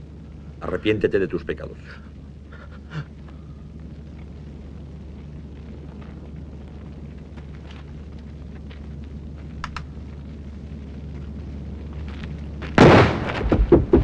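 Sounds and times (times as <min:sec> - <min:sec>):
low steady hum: 0:00.0 - 0:14.0
rifle volley: 0:12.8 - 0:14.0
sharp gunshots echoing: 0:12.8 - 0:14.0.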